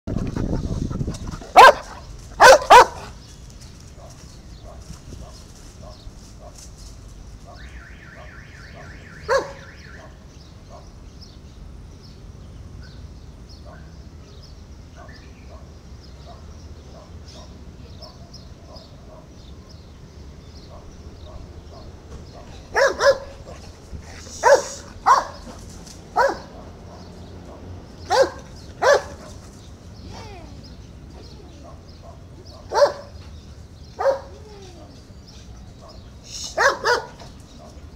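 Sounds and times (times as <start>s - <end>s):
dog barking: 1.5s - 3.1s, 7.4s - 10.9s, 15.0s - 19.8s, 20.7s - 23.7s, 24.4s - 25.6s, 26.2s - 29.4s, 31.6s - 33.2s, 34.0s - 34.4s, 35.8s - 37.8s
warbling electronic alarm siren: 7.6s - 10.0s.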